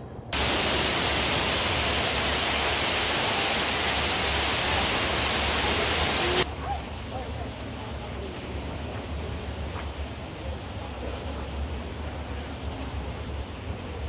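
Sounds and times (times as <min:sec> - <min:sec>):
indoor waterfall rushing: 0:00.4 - 0:06.5.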